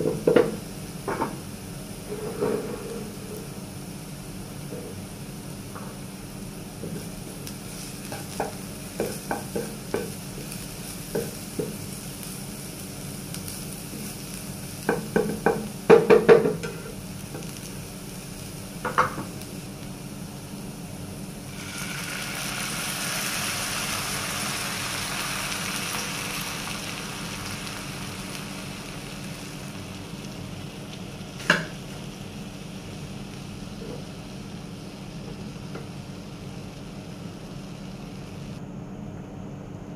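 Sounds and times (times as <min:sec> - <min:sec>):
garlic sizzling in a frying pan: 0:00.0 - 0:38.6
cream hissing in hot pan: 0:06.2 - 0:15.9, 0:16.9 - 0:35.2
spatula tapping and scraping pan: 0:08.1 - 0:10.2, 0:11.1 - 0:11.8.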